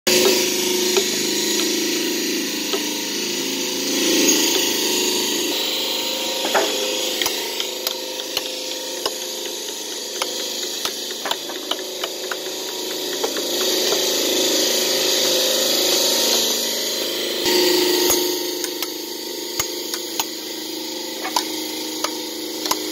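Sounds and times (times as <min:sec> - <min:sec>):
hammer and chisel tapping stone: 0:06.5 - 0:14.2, 0:19.6 - 0:20.4, 0:21.2 - 0:22.9.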